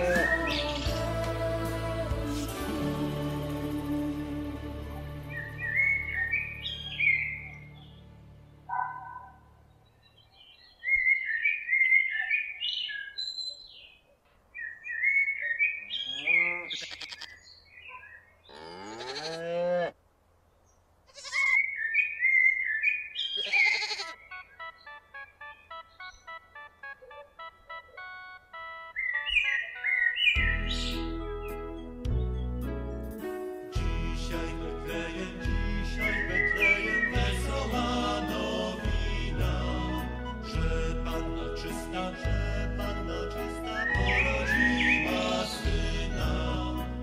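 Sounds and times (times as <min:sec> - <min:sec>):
birds chirping: 0:00.0 - 0:01.1, 0:05.3 - 0:19.3, 0:20.4 - 0:32.8, 0:35.9 - 0:38.7, 0:43.5 - 0:46.2
sheep bleating: 0:00.0 - 0:01.1, 0:16.0 - 0:17.4, 0:18.5 - 0:20.0, 0:21.1 - 0:21.7, 0:23.4 - 0:24.3.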